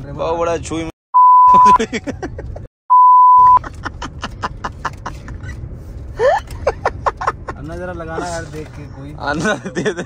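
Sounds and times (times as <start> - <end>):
censor bleep: 1.2 - 1.7, 2.9 - 3.6.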